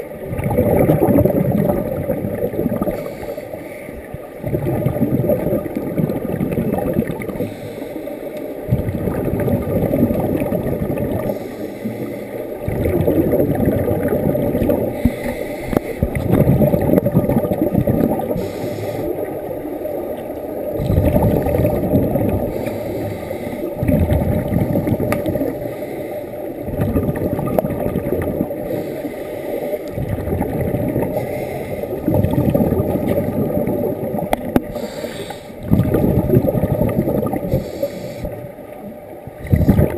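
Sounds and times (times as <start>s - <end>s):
exhaled bubbles: 0.0s - 39.9s
scuba regulator breathing underwater: 2.7s - 4.0s, 7.2s - 9.1s, 10.4s - 16.4s, 18.2s - 19.4s, 20.7s - 26.7s, 28.5s - 30.3s, 31.0s - 33.0s, 34.6s - 38.6s.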